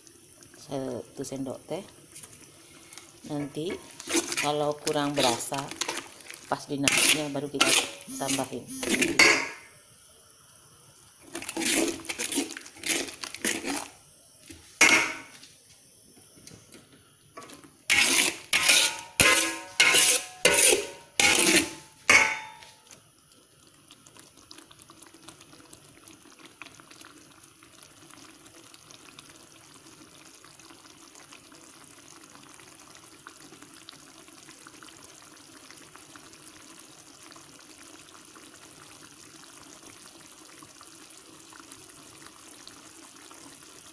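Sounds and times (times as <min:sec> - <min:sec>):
faint hiss: 0:00.0 - 0:18.5
metal spatula scraping wok: 0:03.7 - 0:04.6, 0:06.8 - 0:09.6, 0:11.3 - 0:13.9, 0:17.9 - 0:22.7.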